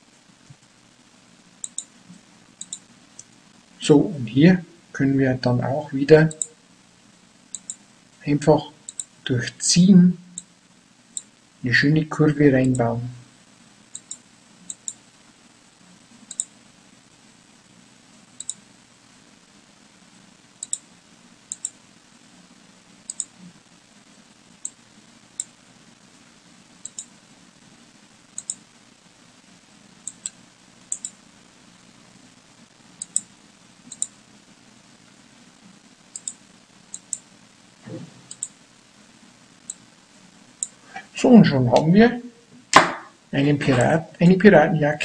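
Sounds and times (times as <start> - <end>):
faint steady hum: 0.0 - 45.0
computer mouse clicking: 1.6 - 1.9, 2.6 - 3.4, 6.3 - 6.5, 7.5 - 7.8, 8.9 - 9.1, 14.0 - 15.0, 16.3 - 16.5, 18.4 - 18.6, 20.6 - 20.8, 21.5 - 21.8, 23.1 - 23.3, 26.8 - 27.1, 28.4 - 28.6, 30.1 - 31.2, 33.0 - 33.3, 33.9 - 34.1, 36.2 - 37.2, 38.3 - 38.6.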